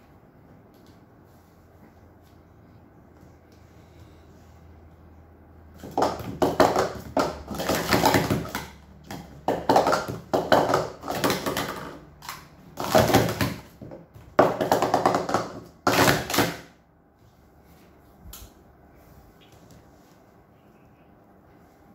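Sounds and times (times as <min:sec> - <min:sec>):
plastic cups clacking and sliding: 0:05.7 - 0:16.7.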